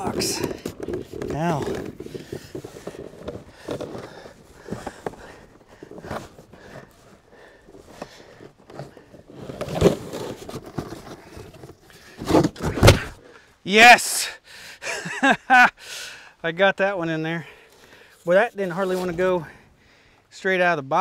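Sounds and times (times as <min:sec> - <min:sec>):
cardboard carton scraping against metal: 0:00.0 - 0:13.2, 0:18.2 - 0:19.5.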